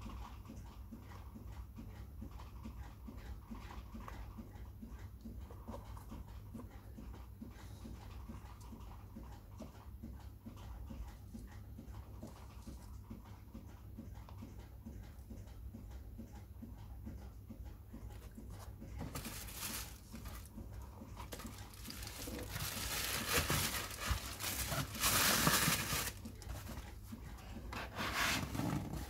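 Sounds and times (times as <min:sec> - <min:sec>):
cardboard box being handled: 0:19.0 - 0:20.5, 0:21.2 - 0:26.8
tissue paper crinkling: 0:19.1 - 0:20.5, 0:21.3 - 0:26.6.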